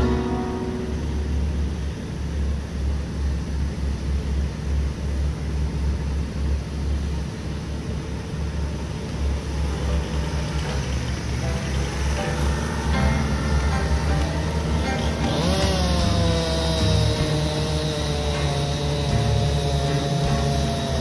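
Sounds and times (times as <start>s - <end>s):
vehicle engine idling: 0.0s - 21.0s.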